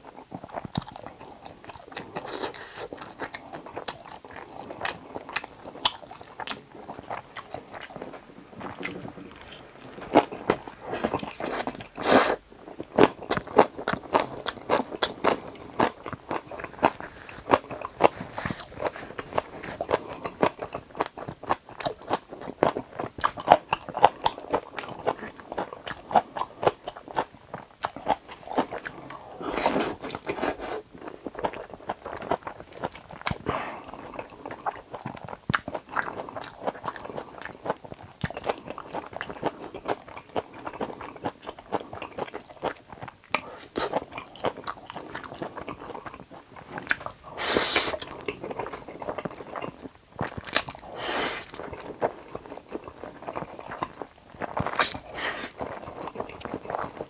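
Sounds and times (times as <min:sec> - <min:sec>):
wet chewing: 0:00.0 - 0:57.0
noodle slurps: 0:47.2 - 0:49.6, 0:50.7 - 0:53.4, 0:54.6 - 0:57.0.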